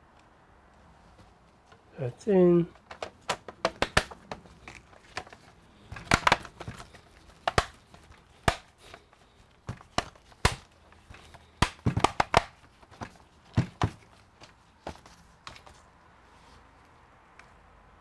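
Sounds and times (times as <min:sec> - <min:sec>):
laptop clicks and knocks: 0:02.8 - 0:09.1, 0:09.7 - 0:14.0.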